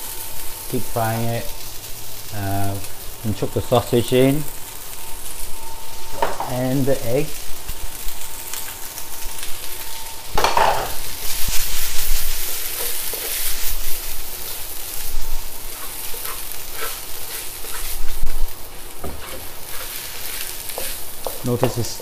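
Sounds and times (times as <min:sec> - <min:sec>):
rice sizzling in a wok: 0:00.0 - 0:22.0
wooden spatula scraping wok: 0:10.3 - 0:22.0.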